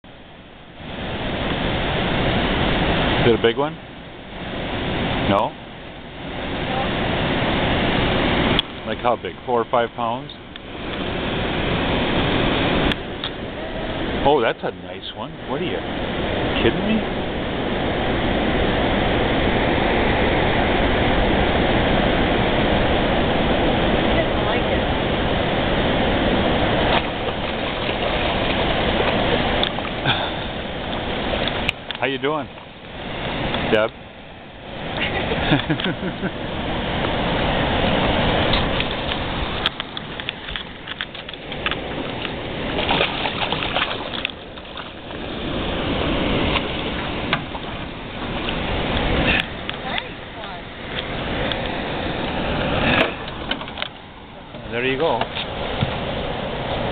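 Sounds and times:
river water rushing: 0.0s - 56.9s
wind noise: 15.4s - 33.9s
fish splashing at water surface: 26.8s - 31.9s, 37.9s - 49.9s
knocks and clicks in a boat: 38.0s - 45.2s, 46.5s - 51.7s, 53.0s - 56.1s.

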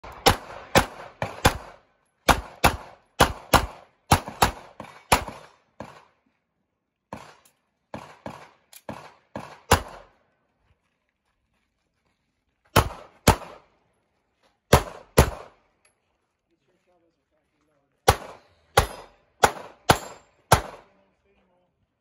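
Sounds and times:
pistol shots with echo: 0.0s - 6.1s, 7.1s - 10.1s, 12.8s - 13.6s, 14.7s - 15.6s, 18.0s - 21.0s.

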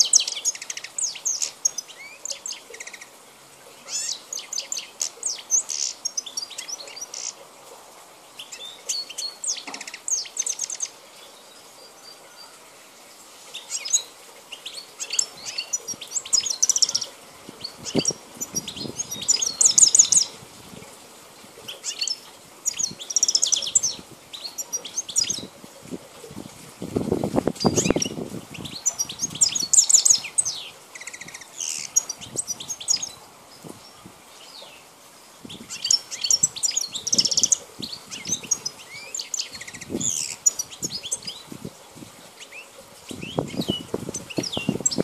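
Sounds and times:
goldfinch singing: 0.0s - 3.2s, 3.8s - 7.4s, 8.4s - 12.6s, 13.5s - 20.4s, 21.6s - 25.5s, 27.6s - 34.9s, 35.5s - 41.5s, 42.4s - 45.0s.

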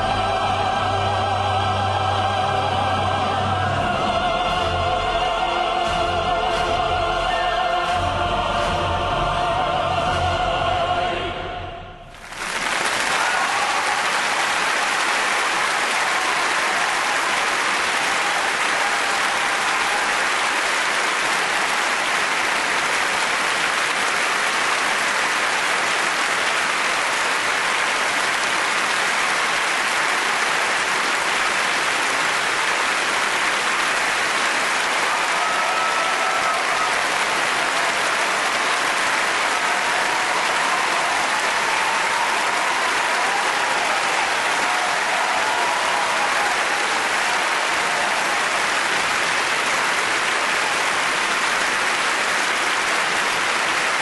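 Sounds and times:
audience applauding: 12.1s - 54.0s.

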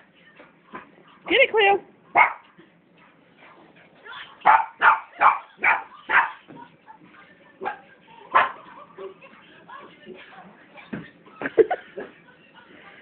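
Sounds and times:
small puppy barking: 2.2s - 2.4s, 4.4s - 6.4s.

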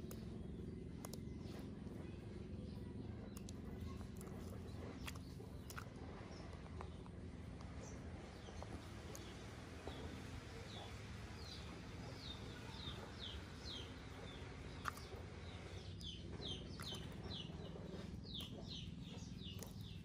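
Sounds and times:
bird chirping: 0.0s - 20.0s
low steady hum: 0.0s - 20.0s.

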